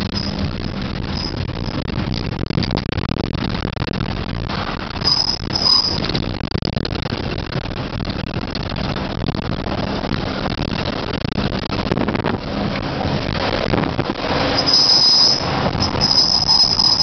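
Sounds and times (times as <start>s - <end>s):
high-pitched squeals: 0.0s - 1.8s, 5.0s - 6.2s, 14.3s - 17.0s
vehicle engine and road noise: 0.0s - 17.0s.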